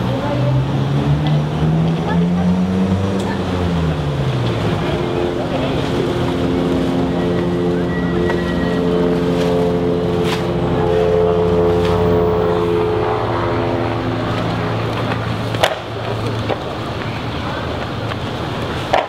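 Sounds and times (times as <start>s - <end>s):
low drone of held tones: 0.0s - 18.5s.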